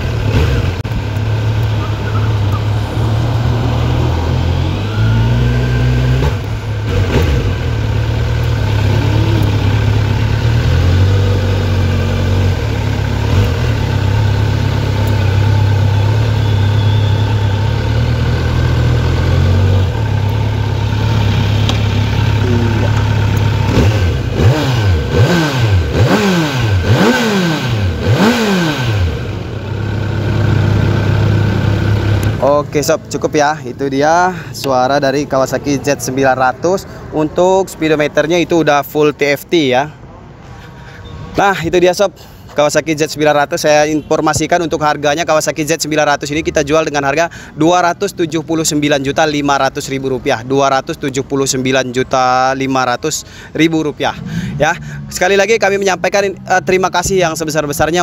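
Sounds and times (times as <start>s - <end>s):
motorcycle engine running: 0.0s - 32.8s
motorcycle engine revving: 0.0s - 32.9s, 54.0s - 58.0s.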